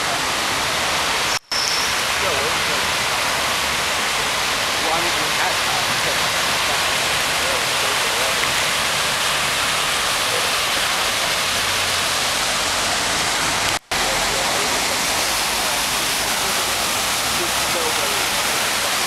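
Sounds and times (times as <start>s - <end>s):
faint voices: 4.8s - 8.8s, 10.1s - 11.6s, 13.9s - 19.0s.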